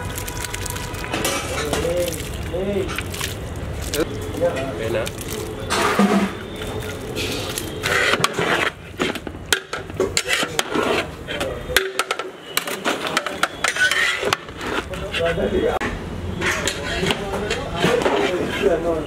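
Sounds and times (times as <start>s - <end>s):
metal spatula scraping metal pot: 5.6s - 19.0s.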